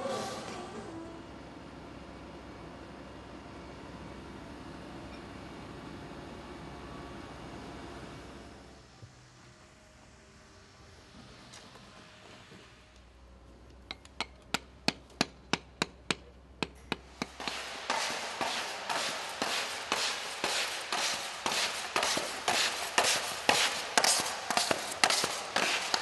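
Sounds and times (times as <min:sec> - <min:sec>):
hammer tapping: 0:13.9 - 0:26.0.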